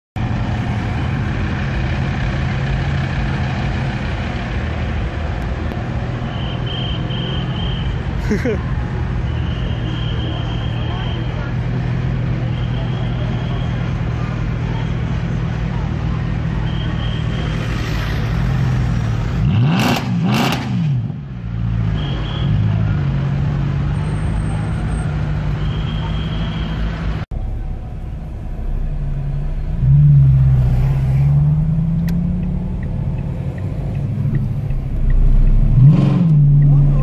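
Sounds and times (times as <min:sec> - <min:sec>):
car engine revving: 0:17.4 - 0:21.9, 0:26.9 - 0:37.0.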